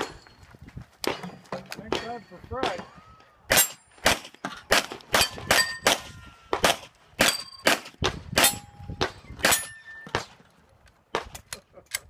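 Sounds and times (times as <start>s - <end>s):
steel targets ringing clang: 1.1s - 4.0s, 5.2s - 6.6s, 9.4s - 10.3s
pistol shots: 3.5s - 10.3s.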